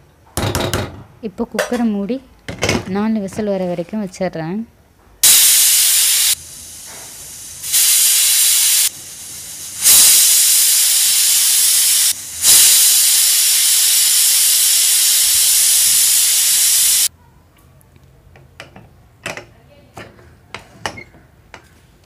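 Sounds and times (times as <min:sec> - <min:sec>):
pressure cooker whistling: 0:05.2 - 0:06.4, 0:07.5 - 0:17.1
soft steam hiss: 0:05.2 - 0:17.1.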